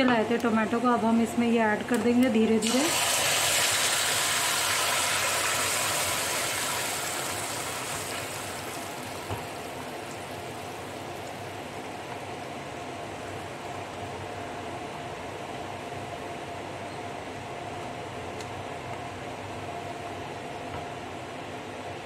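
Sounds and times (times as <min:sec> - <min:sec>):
puree sizzling in hot oil: 0:02.6 - 0:11.0.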